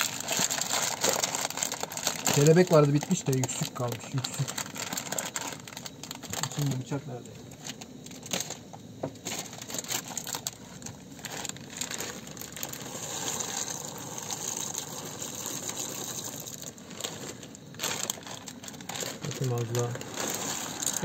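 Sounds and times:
plastic bag crinkling: 0.0s - 21.0s
dry pasta pouring into pot: 11.2s - 21.0s.

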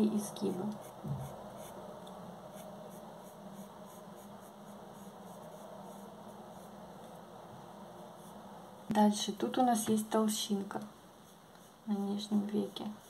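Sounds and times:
pencil scratching on paper: 0.2s - 1.8s, 2.5s - 7.2s, 11.2s - 13.0s.

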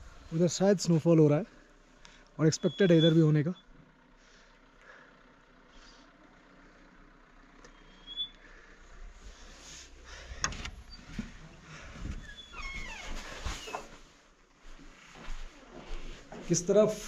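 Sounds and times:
low rumble: 8.5s - 13.4s
door hinges squeaking: 10.4s - 11.3s, 12.1s - 13.9s.

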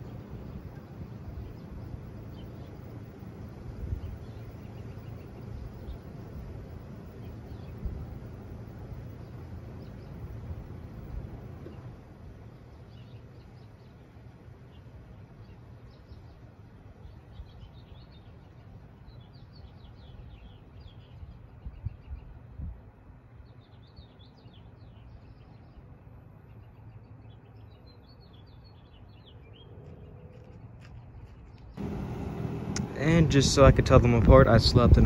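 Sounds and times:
heat pump unit humming: 0.0s - 12.4s, 31.8s - 35.0s
small birds chirping: 0.0s - 22.6s, 23.3s - 35.0s.

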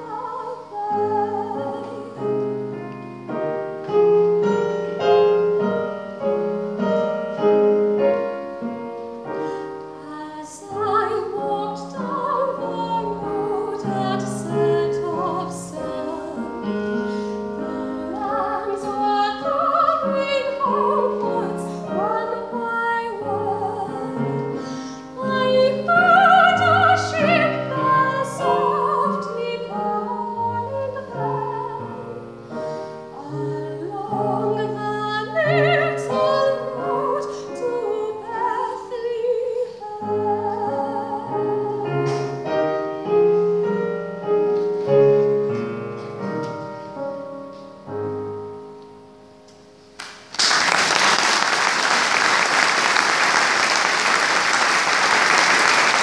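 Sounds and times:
woman singing a ballad: 0.0s - 2.6s, 10.0s - 42.6s
piano accompaniment: 0.0s - 56.0s
audience applause: 50.0s - 56.0s.

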